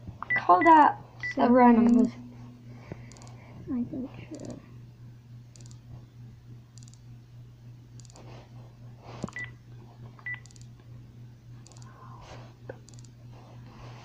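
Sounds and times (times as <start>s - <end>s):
low steady hum: 0.0s - 14.0s
phone keypad beeps: 9.3s - 9.5s, 10.2s - 10.6s.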